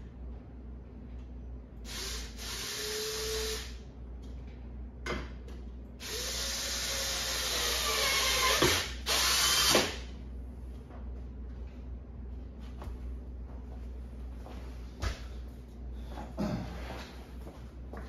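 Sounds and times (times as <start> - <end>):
cordless drill driving screws: 6.0 - 10.0.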